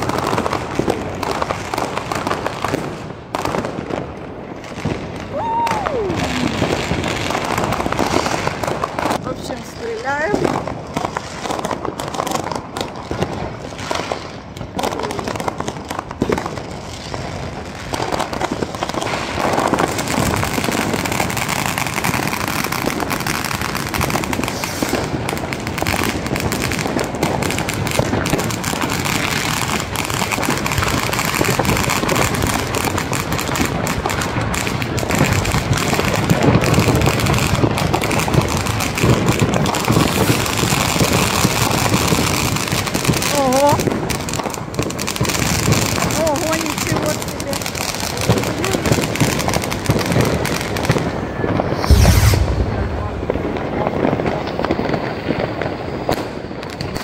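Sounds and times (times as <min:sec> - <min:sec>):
fireworks crackling and popping: 0:00.0 - 0:57.0.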